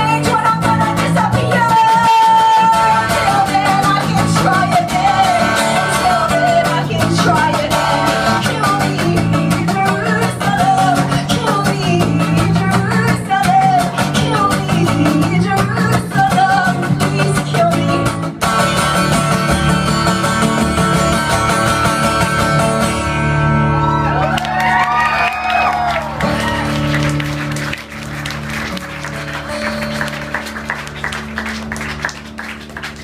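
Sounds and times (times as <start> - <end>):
woman singing: 0.0 - 18.4
strummed acoustic guitar: 0.0 - 23.9, 26.2 - 33.0.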